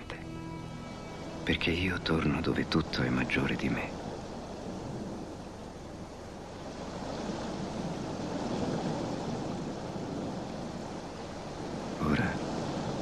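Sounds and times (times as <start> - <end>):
waves washing on shore: 0.0 - 13.0.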